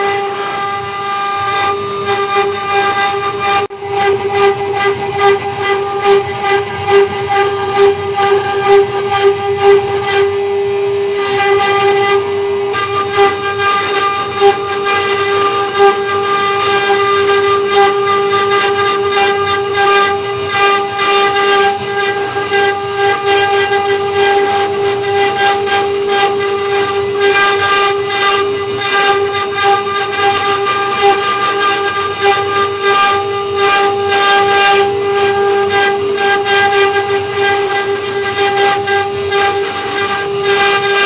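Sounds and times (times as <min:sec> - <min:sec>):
router spindle high whine: 0:00.0 - 0:41.0
bit rasping into wood: 0:11.2 - 0:41.0.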